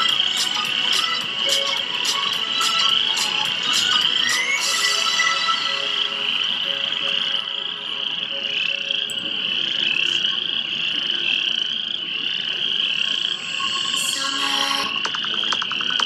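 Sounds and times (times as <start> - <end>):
chorus of frogs trilling: 4.1 - 16.0.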